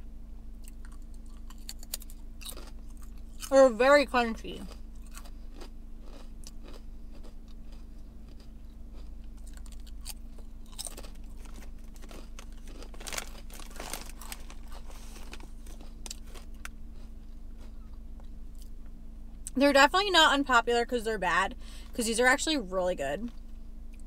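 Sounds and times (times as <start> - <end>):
steady low hum: 0.0 - 24.0
chip bag rustling: 9.4 - 16.7
chips being crunched: 9.4 - 16.8.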